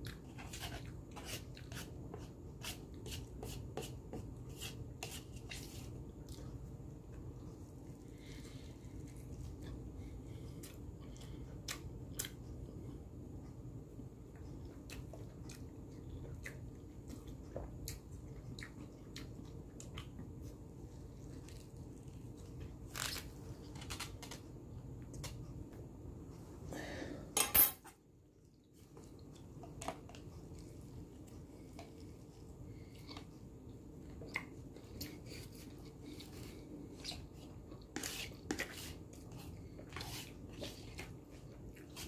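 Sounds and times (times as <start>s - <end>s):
faint room hum: 0.0s - 42.0s
chewing with mouth clicks: 14.3s - 22.7s, 28.4s - 38.4s.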